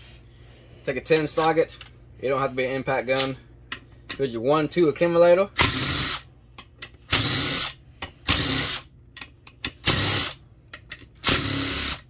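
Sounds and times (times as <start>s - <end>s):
power tool spinning: 11.2s - 12.0s.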